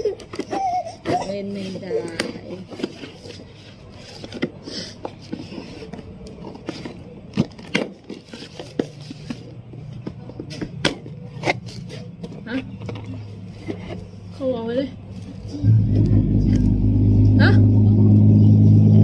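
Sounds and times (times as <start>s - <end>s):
low steady hum: 5.2s - 19.0s.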